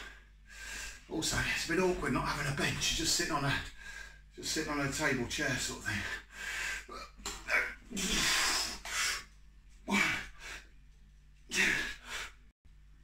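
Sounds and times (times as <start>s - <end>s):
man breathing hard: 0.0s - 1.1s, 3.6s - 4.3s, 5.9s - 10.8s, 11.5s - 12.5s.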